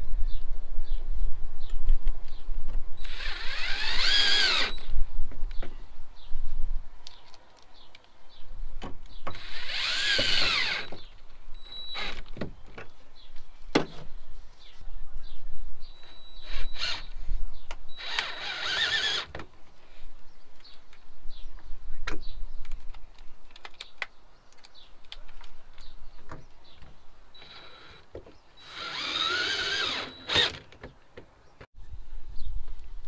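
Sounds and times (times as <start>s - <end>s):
cordless drill motor whirring: 3.0s - 4.9s, 9.3s - 11.0s, 11.6s - 12.2s, 16.0s - 17.1s, 17.9s - 19.3s, 27.4s - 28.0s, 28.6s - 30.6s.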